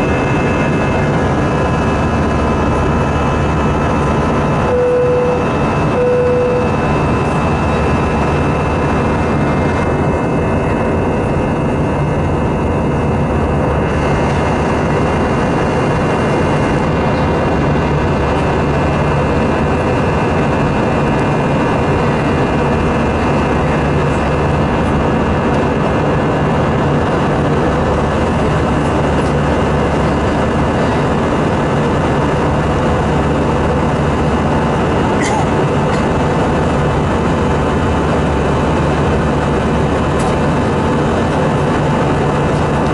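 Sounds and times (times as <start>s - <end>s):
faint whining tones: 0.0s - 11.4s
jet cabin drone and air rush: 0.0s - 42.9s
short single-pitch tone: 4.6s - 6.9s.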